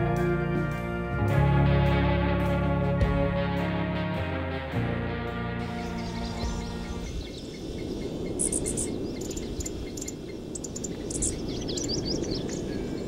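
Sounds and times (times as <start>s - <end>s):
background music: 0.0s - 7.3s
low outdoor rush: 0.0s - 13.0s
birds chirping and twittering: 5.4s - 13.0s.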